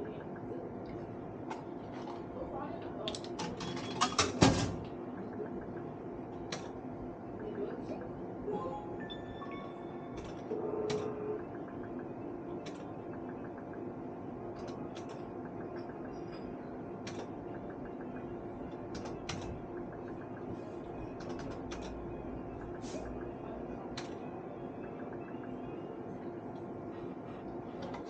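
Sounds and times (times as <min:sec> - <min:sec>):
slot machine steady tones: 0:03.5 - 0:27.7.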